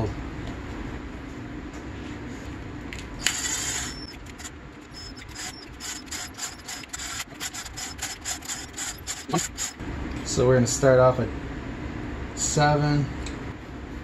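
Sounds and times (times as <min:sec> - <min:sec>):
cordless drill spinning: 0:03.2 - 0:09.8
drill clicking: 0:03.2 - 0:09.8.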